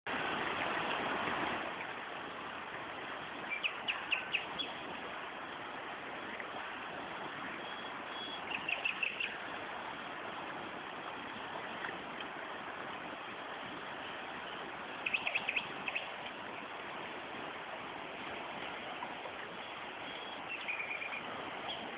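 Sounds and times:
river water rushing: 0.1s - 21.9s.

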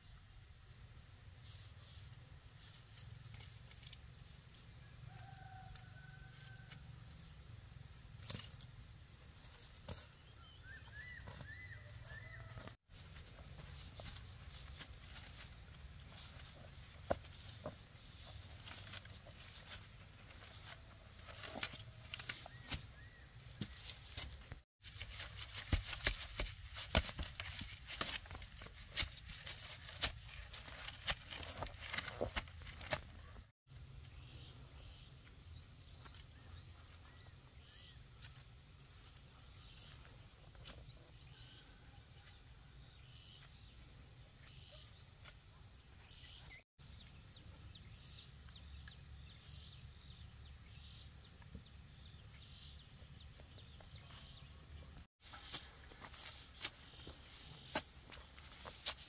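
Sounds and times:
rustling and scraping handwork: 1.3s - 33.6s, 55.1s - 59.0s.

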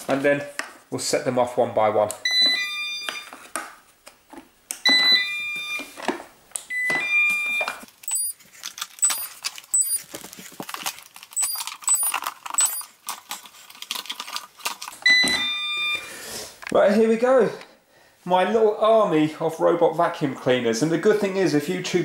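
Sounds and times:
electronic startup tune beeps: 6.7s - 8.4s, 9.0s - 10.0s, 11.4s - 12.8s.

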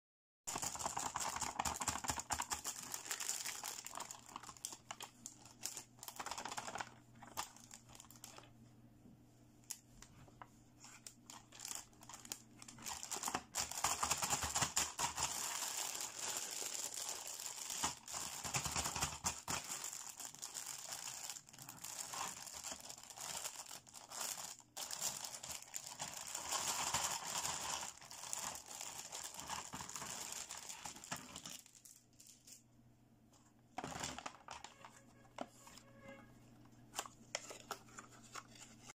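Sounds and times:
plastic bag crinkling: 0.5s - 8.5s, 11.0s - 32.6s, 33.8s - 36.1s
plastic toy pieces clicking: 17.7s - 19.8s.

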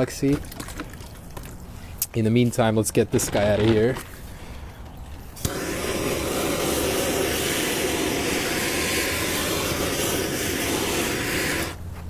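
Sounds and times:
blowtorch hissing: 5.4s - 11.8s.

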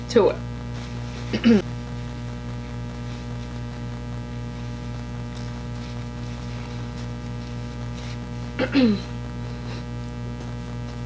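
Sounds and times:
electrical mains hum: 0.0s - 11.0s.

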